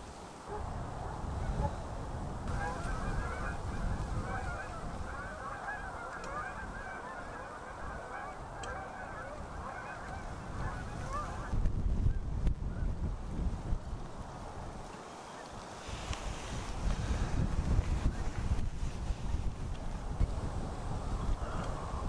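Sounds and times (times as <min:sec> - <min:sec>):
geese honking: 0:02.5 - 0:11.6.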